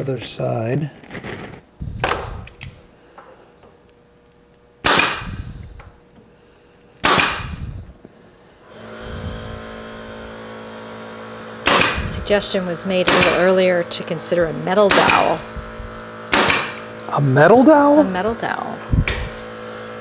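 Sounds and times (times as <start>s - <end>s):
steady motor hum: 0.0s - 20.0s
pin nailer firing: 4.8s - 5.5s, 7.0s - 7.7s, 11.6s - 12.3s, 12.9s - 13.7s, 14.8s - 15.5s, 16.2s - 17.0s.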